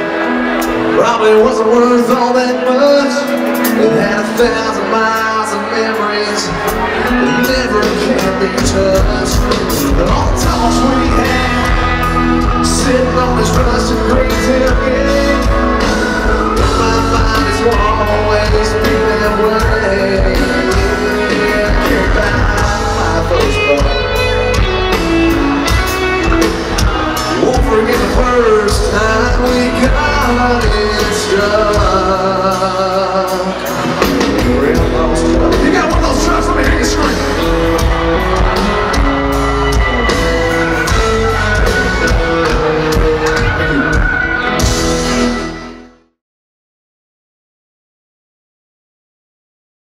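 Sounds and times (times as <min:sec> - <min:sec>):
person singing: 0:00.0 - 0:45.8
drums: 0:00.0 - 0:46.0
guitars: 0:00.0 - 0:46.0
keyboard: 0:00.0 - 0:46.1
electric bass: 0:06.5 - 0:46.0.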